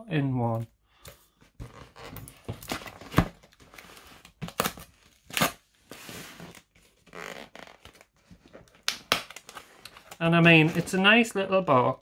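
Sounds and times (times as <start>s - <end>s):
cardboard rustling and scraping: 1.4s - 5.2s, 5.8s - 8.7s.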